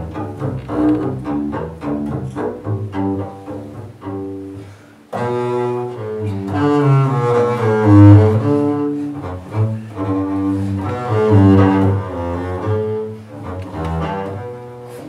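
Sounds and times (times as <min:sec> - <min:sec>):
bowed double bass: 0:00.0 - 0:15.0.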